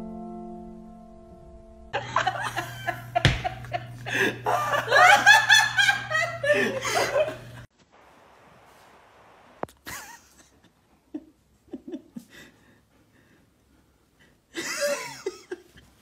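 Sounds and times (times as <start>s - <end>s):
low steady hum: 1.9s - 10.0s
people laughing: 2.0s - 7.7s, 14.6s - 15.9s
sharp knock: 3.3s - 3.6s.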